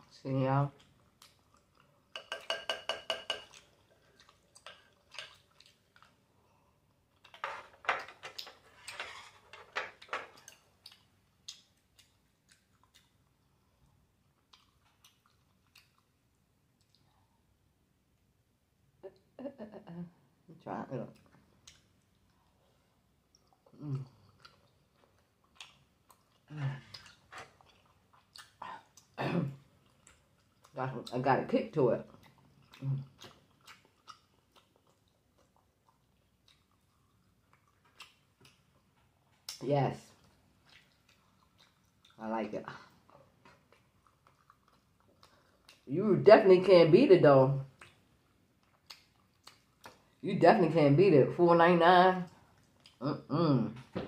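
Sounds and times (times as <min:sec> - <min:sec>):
close-miked eating sounds: 0:00.0 - 0:46.7, 0:47.4 - 0:50.3, 0:51.9 - 0:53.9
wooden utensils tapping glass bowl: 0:02.2 - 0:03.6
person chewing wet mouth sounds: 0:03.5 - 0:06.3, 0:10.6 - 0:17.3, 0:21.2 - 0:30.8, 0:32.1 - 0:39.6, 0:40.2 - 0:42.2, 0:42.9 - 0:45.9, 0:47.7 - 0:50.2.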